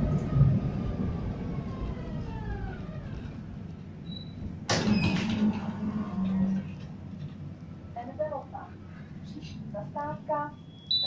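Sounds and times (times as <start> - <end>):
tram rumbling: 0.0 - 11.0.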